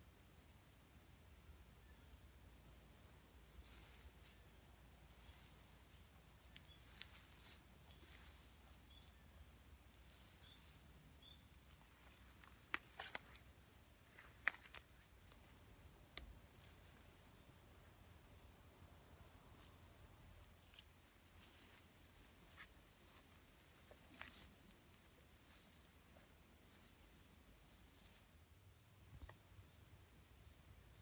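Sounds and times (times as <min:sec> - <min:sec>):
footsteps breaking twigs: 0:09.6 - 0:15.5.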